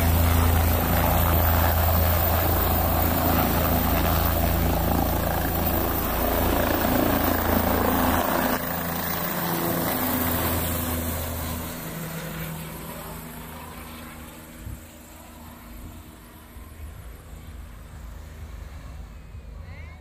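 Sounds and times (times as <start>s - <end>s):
helicopter rotor: 0.0s - 20.0s.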